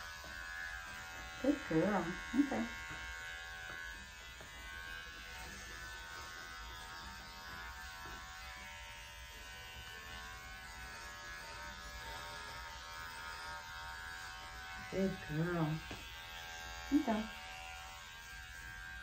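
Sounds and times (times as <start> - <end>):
electric pet clipper buzzing: 0.0 - 19.0.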